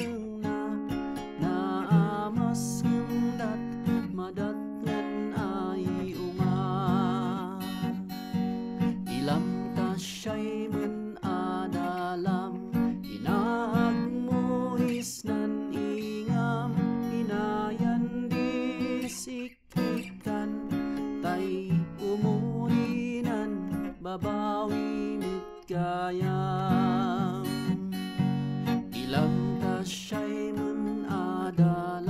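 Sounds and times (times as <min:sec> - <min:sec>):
man singing with vibrato: 0:00.0 - 0:28.0, 0:28.8 - 0:32.0
acoustic guitar strumming: 0:00.0 - 0:32.0.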